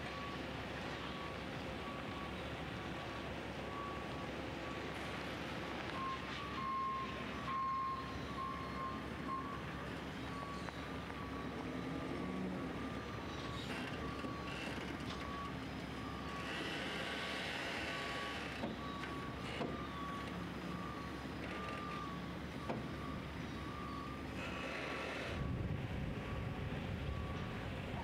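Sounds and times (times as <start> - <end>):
reversing alarm beeping: 0.0 - 28.0.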